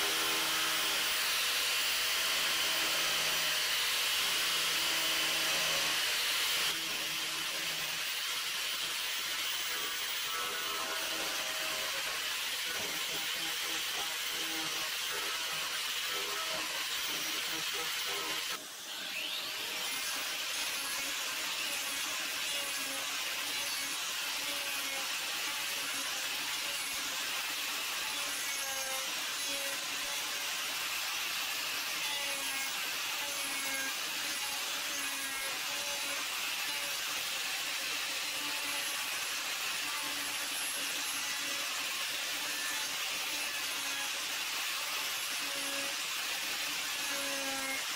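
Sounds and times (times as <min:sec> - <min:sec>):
cutter rasping against wood: 0:09.4 - 0:21.9.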